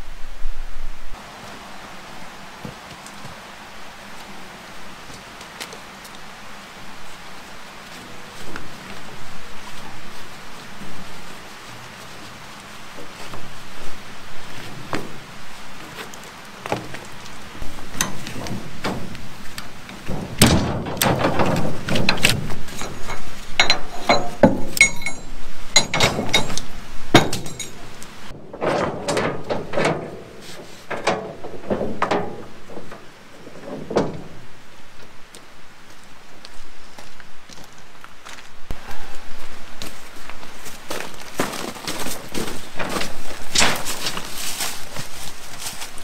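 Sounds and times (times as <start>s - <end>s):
steel rods clanking: 16.7s - 34.7s, 42.2s - 45.1s
ringing metallic clinks: 22.8s - 27.8s.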